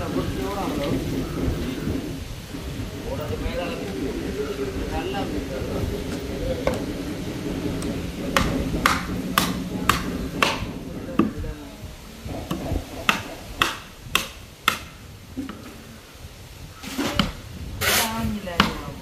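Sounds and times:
hammer knocking on wooden planks: 0:06.1 - 0:11.6, 0:12.4 - 0:15.7, 0:16.9 - 0:17.4, 0:18.5 - 0:19.0.

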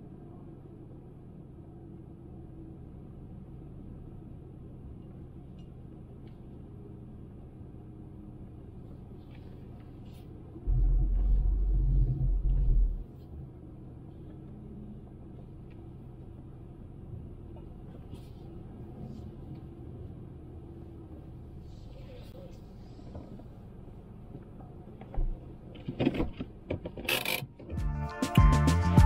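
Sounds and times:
car road and engine noise: 0:00.0 - 0:29.0
loud deep rumble: 0:10.6 - 0:13.2.

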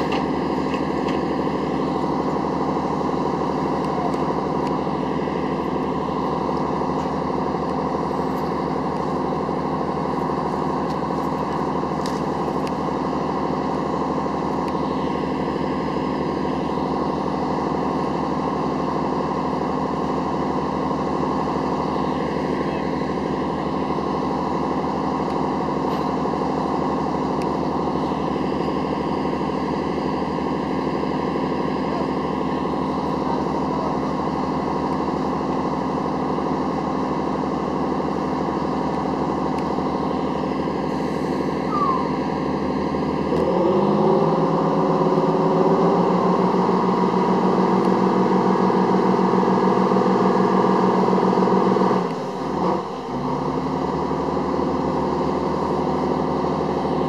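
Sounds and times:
diesel engines running: 0:00.0 - 0:57.0.

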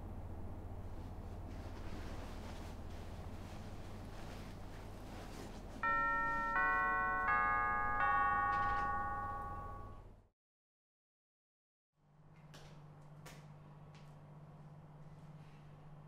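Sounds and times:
low room hum: 0:00.0 - 0:10.3, 0:12.0 - 0:16.0
bell-like chime notes: 0:05.8 - 0:10.2.

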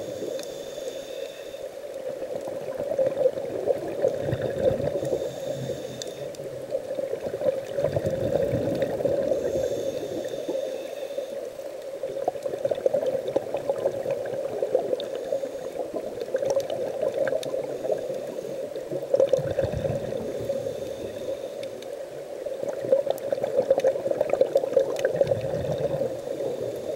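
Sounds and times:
steady hum: 0:00.0 - 0:02.2, 0:04.8 - 0:07.2, 0:08.3 - 0:12.0
diver exhaling bubbles: 0:02.9 - 0:05.7, 0:07.2 - 0:09.7, 0:19.1 - 0:20.6, 0:22.8 - 0:26.7.

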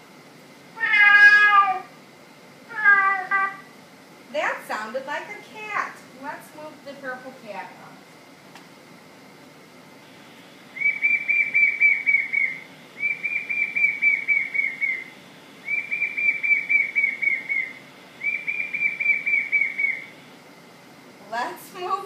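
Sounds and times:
recorded bird song from speaker: 0:10.1 - 0:20.3.

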